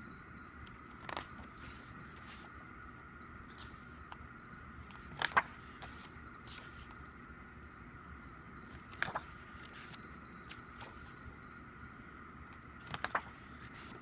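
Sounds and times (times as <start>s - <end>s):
faint steady hum: 0.0s - 14.0s
book pages turning: 0.9s - 2.5s, 3.5s - 4.2s, 4.9s - 7.0s, 8.8s - 11.1s, 12.8s - 14.0s.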